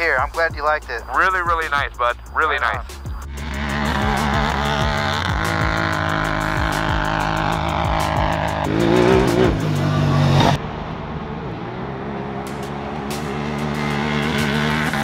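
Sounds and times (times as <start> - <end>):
engine revving under throttle: 3.2 - 15.0.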